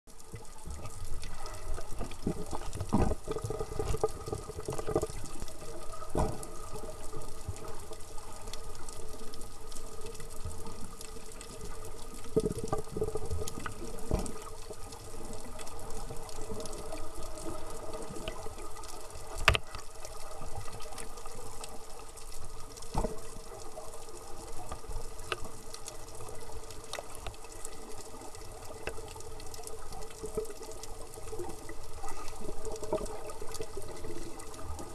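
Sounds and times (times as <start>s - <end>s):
underwater hum with steady tones: 0.1s - 34.9s.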